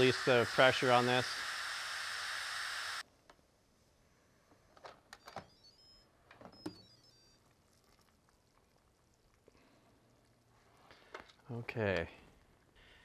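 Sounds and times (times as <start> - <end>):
pressure cooker steam hissing: 0.0 - 3.0
electronic beeps: 5.2 - 7.4.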